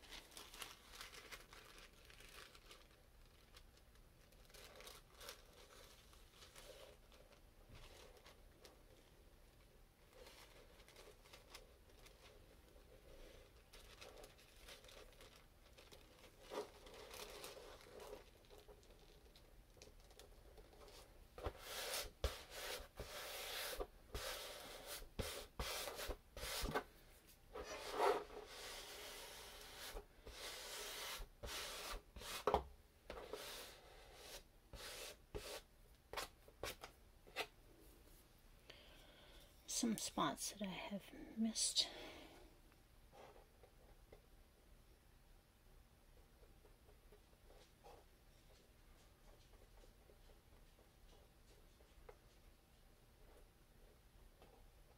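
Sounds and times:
tissue paper rustling and crinkling: 0.0s - 26.9s.

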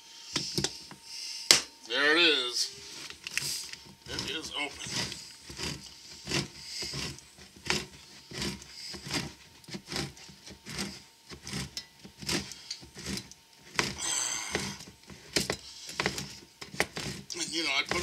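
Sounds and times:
high-pitched scrape: 2.6s - 9.4s
can opener scraping and clicking: 3.0s - 18.0s.

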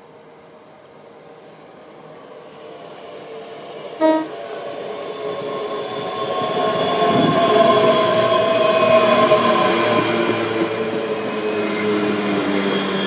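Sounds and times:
electric train whine: 0.0s - 13.0s
train wheels rumbling: 1.4s - 13.0s
train horn toot: 4.0s - 4.4s.

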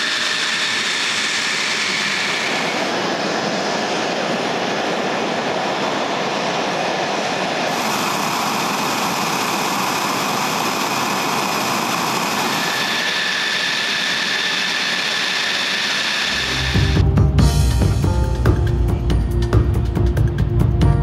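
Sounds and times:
jet engines rushing: 0.0s - 20.8s
thin high whine: 7.7s - 17.0s.

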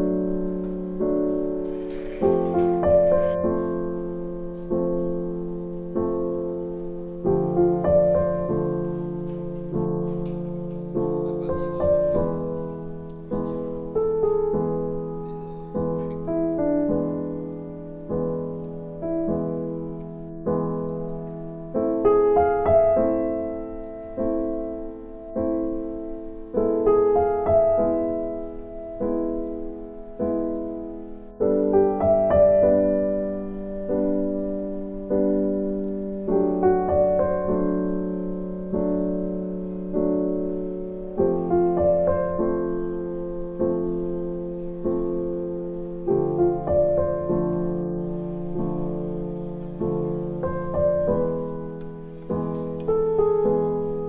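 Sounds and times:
slow piano music: 0.0s - 54.0s.

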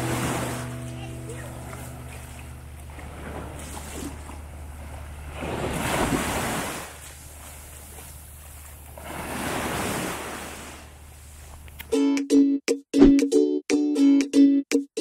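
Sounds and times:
steady low rumble: 0.0s - 6.1s
small waves breaking on beach: 0.0s - 11.6s.

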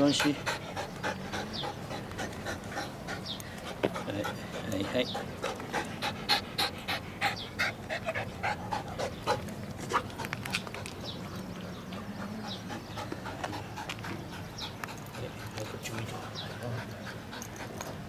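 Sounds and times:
dog panting: 0.0s - 18.0s.

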